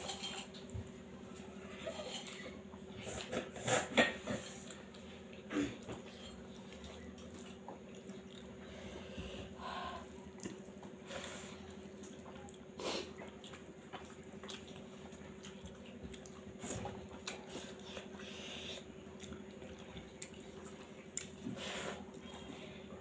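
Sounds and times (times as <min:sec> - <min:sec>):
steady low hum: 0:00.0 - 0:23.0
wet chewing and mouth smacks: 0:04.6 - 0:08.6, 0:12.0 - 0:18.2, 0:18.8 - 0:21.5.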